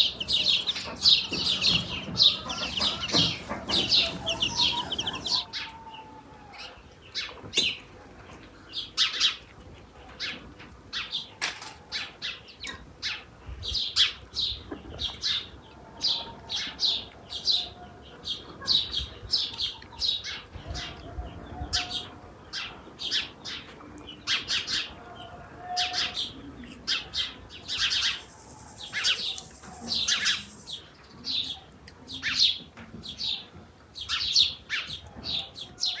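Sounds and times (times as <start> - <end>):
small songbirds chirping: 0.0 - 5.5, 26.1 - 36.0
steady high hiss: 27.9 - 30.9.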